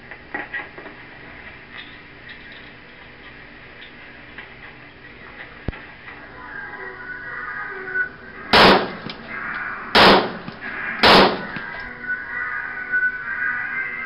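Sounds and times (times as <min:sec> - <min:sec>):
gunshots: 0:08.5 - 0:09.2, 0:09.9 - 0:11.8.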